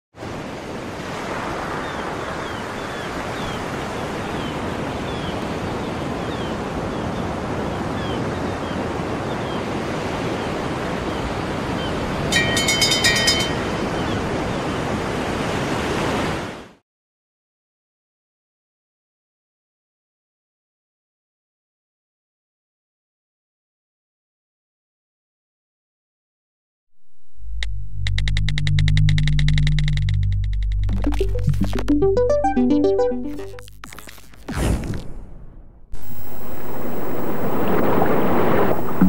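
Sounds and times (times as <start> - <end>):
sea surf: 0.2 - 16.8, 36.0 - 39.0
high ringing tones: 12.3 - 13.9.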